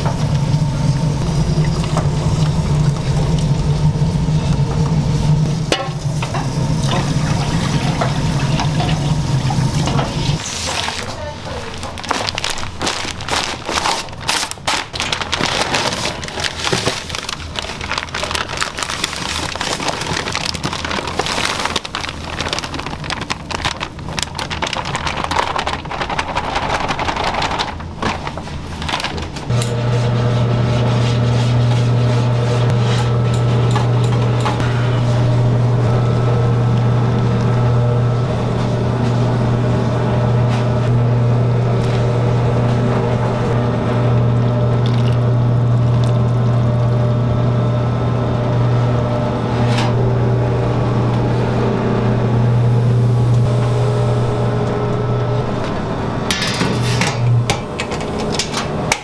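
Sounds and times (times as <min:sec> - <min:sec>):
machine motor humming: 0:00.0 - 0:10.4, 0:29.3 - 0:59.0
kitchen crackling and knocks: 0:05.7 - 0:29.9, 0:55.6 - 0:59.0.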